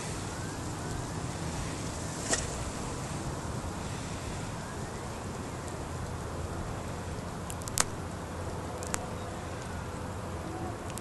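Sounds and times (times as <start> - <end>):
low rumble: 0.0 - 10.9
distant small plane engine drone: 0.0 - 11.0
sharp clicks: 7.5 - 8.0, 8.8 - 9.7.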